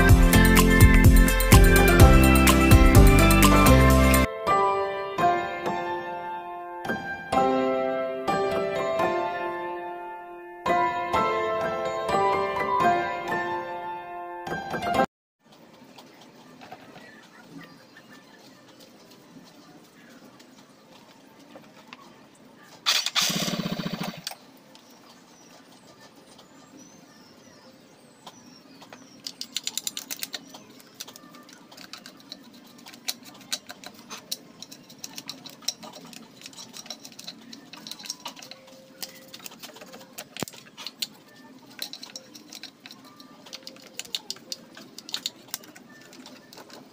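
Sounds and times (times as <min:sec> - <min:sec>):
small metallic clicks and rattles: 0:28.8 - 0:46.9.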